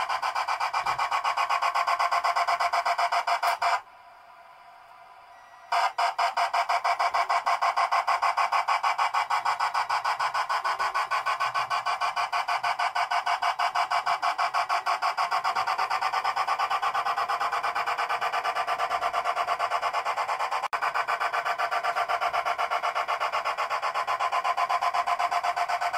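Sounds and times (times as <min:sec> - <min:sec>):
model steam locomotive chuffing: 0:05.2 - 0:25.9.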